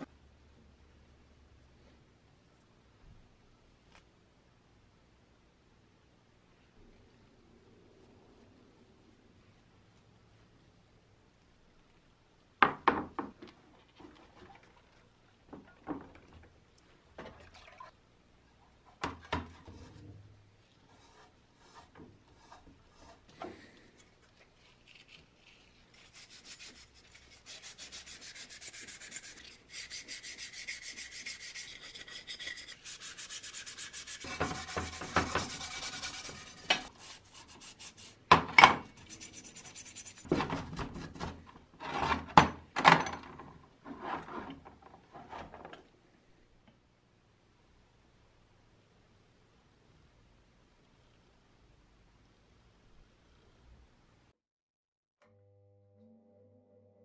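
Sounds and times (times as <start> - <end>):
brush scrubbing metal part: 24.4 - 38.3, 38.9 - 40.3.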